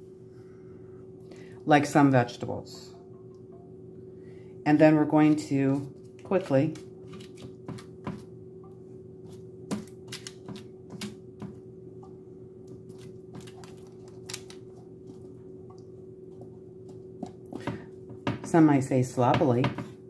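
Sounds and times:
low steady hum: 0.0s - 20.0s
paper crinkling: 12.9s - 14.8s.

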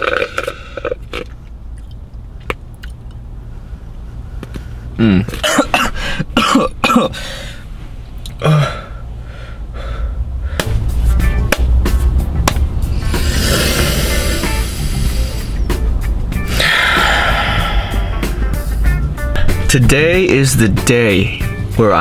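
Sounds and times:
low hum inside a car: 0.2s - 11.4s
man clearing throat and coughing: 5.0s - 7.2s.

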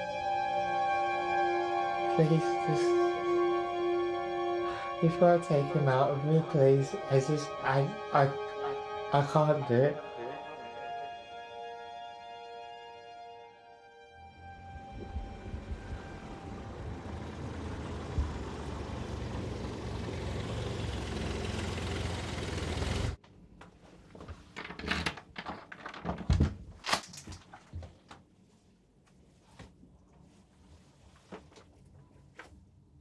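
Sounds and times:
car driving close by: 14.2s - 23.2s.

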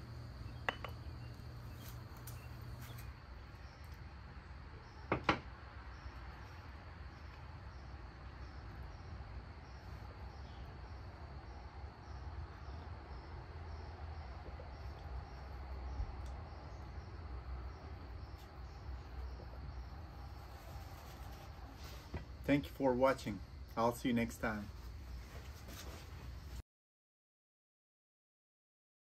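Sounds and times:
crickets chirping: 0.0s - 26.5s
glass tea cup clinks: 0.7s - 1.0s.

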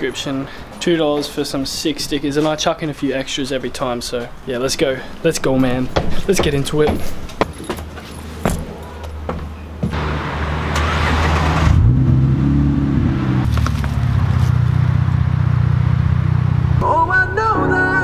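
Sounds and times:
car engine starting and idling: 9.9s - 16.9s.

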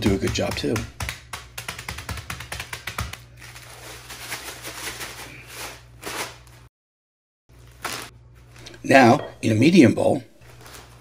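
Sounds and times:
crinkling plastic bag: 3.4s - 6.4s.

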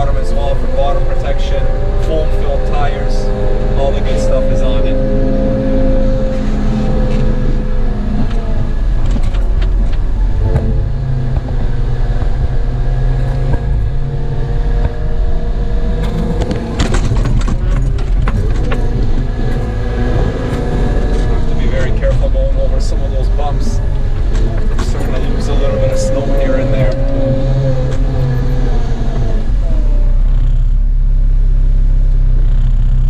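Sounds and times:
diesel engine running: 0.0s - 33.0s
rattles and knocks: 8.2s - 14.0s, 16.0s - 22.5s.

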